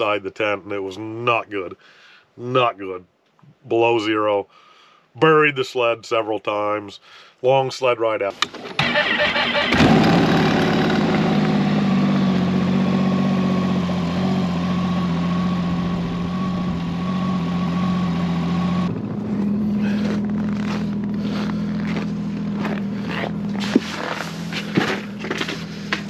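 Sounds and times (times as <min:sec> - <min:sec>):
snowmobile engine idling: 0:08.8 - 0:26.0
engine knocks: 0:18.9 - 0:26.0.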